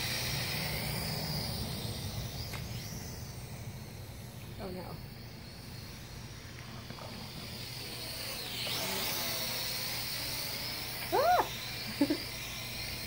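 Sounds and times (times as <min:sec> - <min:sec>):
drone propellers whining: 0:00.0 - 0:13.0
dog yelping: 0:11.1 - 0:11.5.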